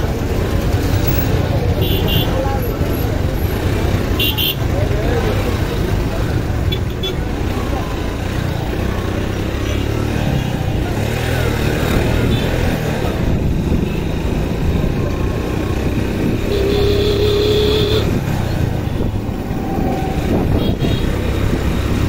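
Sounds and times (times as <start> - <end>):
horn honking: 16.4 - 18.2.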